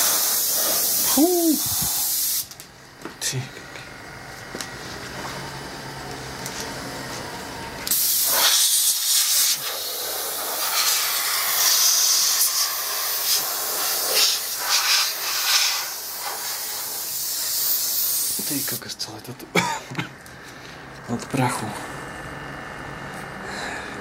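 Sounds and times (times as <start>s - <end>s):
compressed air blow gun hissing: 0.0s - 2.6s, 7.9s - 18.9s.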